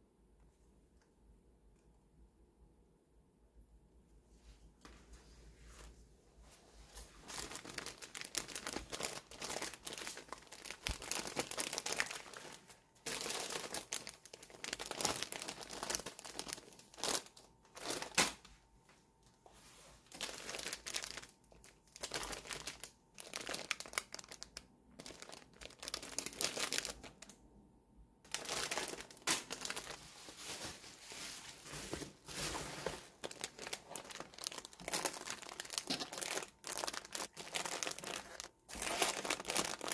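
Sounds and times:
plastic packaging crinkling: 7.1 - 18.5, 20.0 - 27.4, 28.3 - 39.9.

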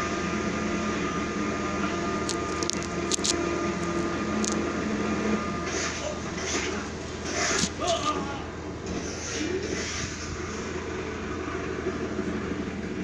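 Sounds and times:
mechanical hum and hiss: 0.0 - 13.0
sharp clicks: 2.3 - 4.6.

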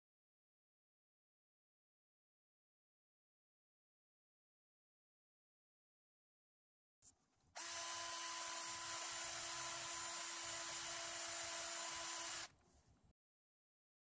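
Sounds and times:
cordless drill whining: 7.6 - 12.6.

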